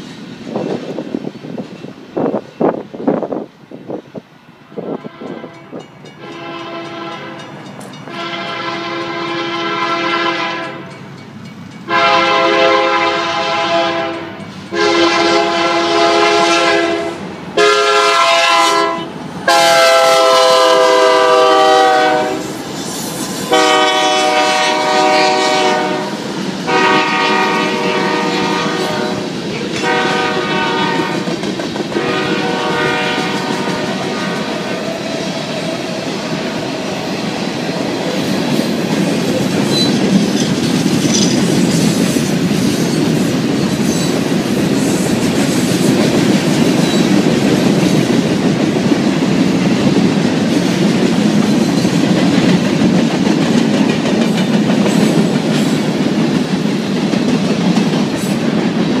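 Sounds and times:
locomotive air horn blasts: 4.9s - 11.0s, 11.9s - 22.6s, 23.5s - 31.3s, 32.0s - 34.8s
freight cars clickety-clack: 28.1s - 59.0s.

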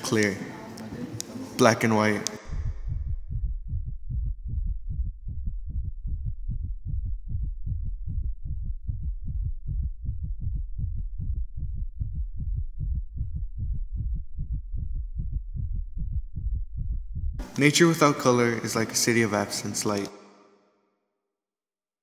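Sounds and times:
low rapid throbbing pulse: 2.4s - 17.5s.

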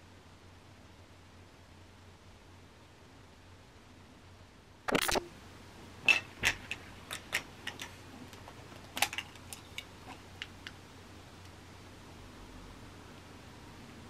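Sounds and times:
small objects clicking and tapping: 6.1s - 10.8s.

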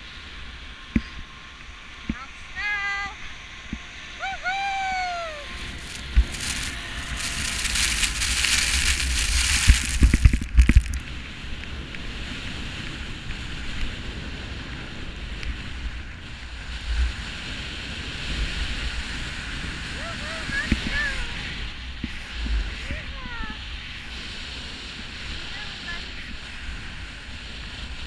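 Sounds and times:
skis sliding over snow: 5.5s - 11.1s
wind on microphone: 5.5s - 28.0s.

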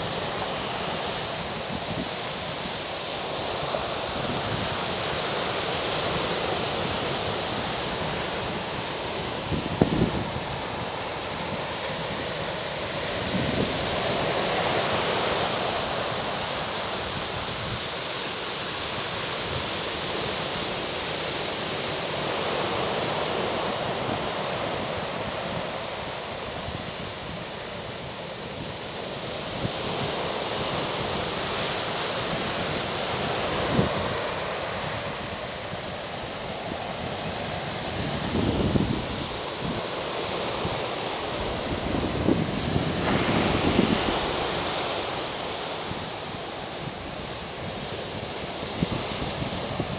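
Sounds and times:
ocean surf breaking: 0.0s - 49.9s
wind buffeting microphone: 6.0s - 17.9s, 23.6s - 49.9s.

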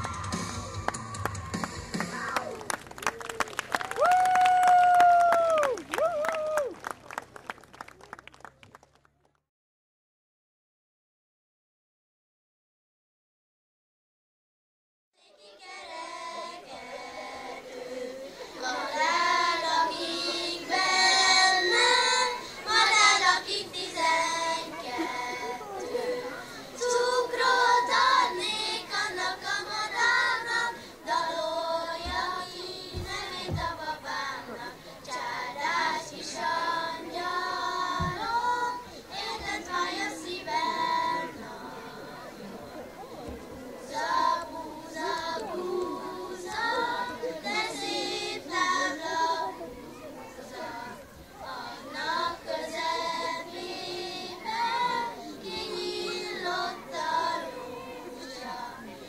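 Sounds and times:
girls singing folk song: 15.2s - 59.0s.

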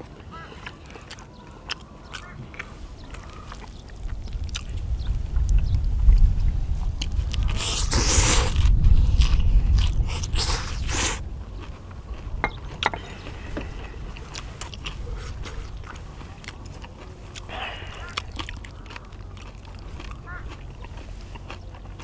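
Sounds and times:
chewing: 0.0s - 22.0s
noodles slurped loudly: 7.4s - 11.2s.

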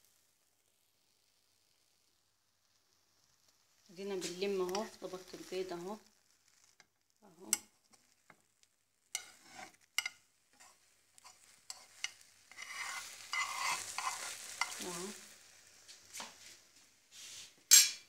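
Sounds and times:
egg sizzling in a pan: 0.0s - 18.0s
utensil tapping and scraping pan: 6.8s - 15.0s, 17.7s - 18.0s.

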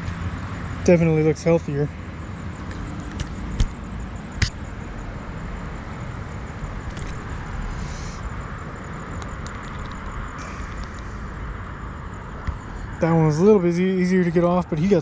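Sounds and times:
sharp knocks: 3.1s - 3.8s.

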